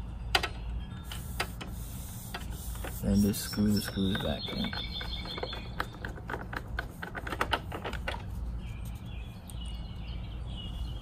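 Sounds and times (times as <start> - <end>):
bird chirps: 3.0 - 6.2, 8.5 - 11.0.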